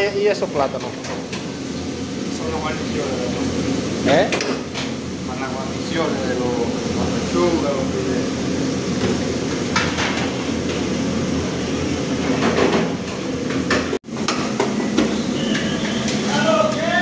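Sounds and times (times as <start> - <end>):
kitchen equipment hum and hiss: 0.0 - 17.0.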